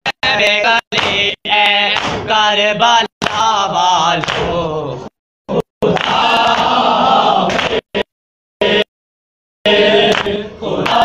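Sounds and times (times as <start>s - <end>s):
men singing lament unaccompanied: 0.1s - 8.9s, 9.7s - 11.0s.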